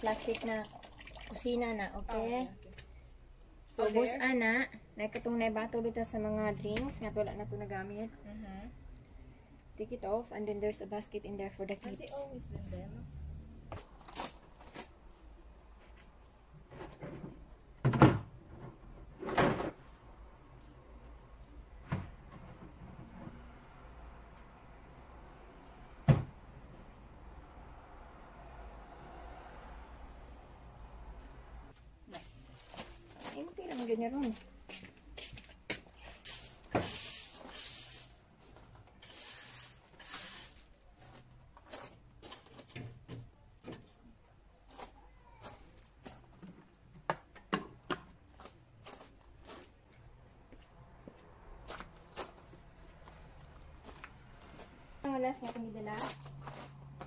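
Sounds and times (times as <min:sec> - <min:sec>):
rustling: 0:35.4 - 0:42.8
footsteps crunching on gravel: 0:55.4 - 0:57.0.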